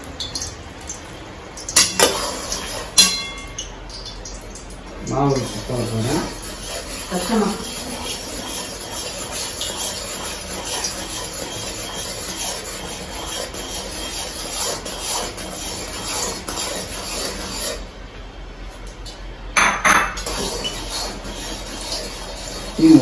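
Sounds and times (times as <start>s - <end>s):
syrup hissing and bubbling: 0.0s - 18.0s
ladle scraping pan: 1.7s - 3.6s, 5.0s - 17.9s, 20.1s - 23.0s.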